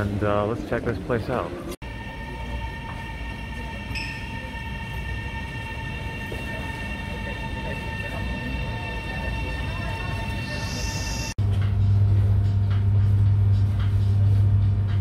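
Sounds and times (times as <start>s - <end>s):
train rumbling: 0.0s - 15.0s
high-pitched whine: 1.8s - 11.4s.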